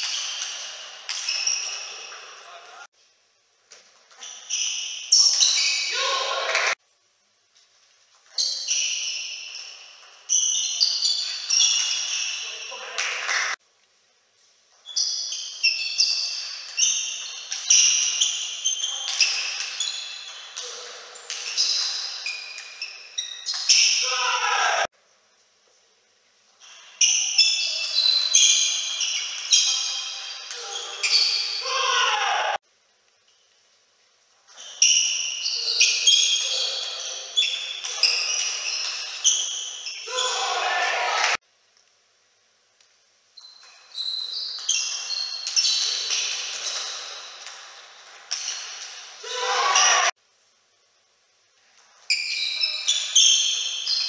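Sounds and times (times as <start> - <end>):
table tennis ball hits and bounces: 0.0 - 2.4, 15.6 - 24.0, 44.5 - 49.2.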